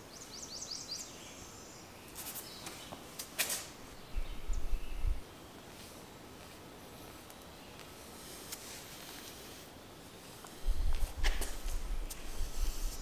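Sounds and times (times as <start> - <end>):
small bird chirping: 0.0 - 3.1, 3.8 - 5.8
rubber strip rustling on concrete: 2.1 - 3.8, 5.7 - 13.0.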